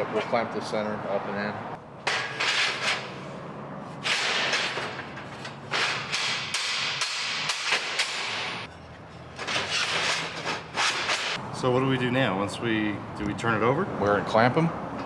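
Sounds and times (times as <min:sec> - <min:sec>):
sharp metal knocks: 0:02.0 - 0:03.2, 0:04.0 - 0:08.7
metal plates scraping and sliding: 0:02.1 - 0:11.4.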